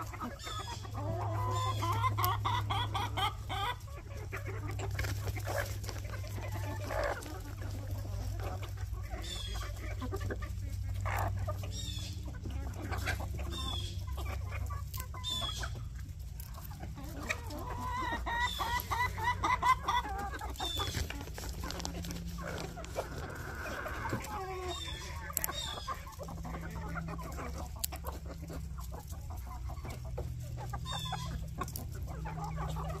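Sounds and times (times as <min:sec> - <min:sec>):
chickens clucking: 0:00.0 - 0:33.0.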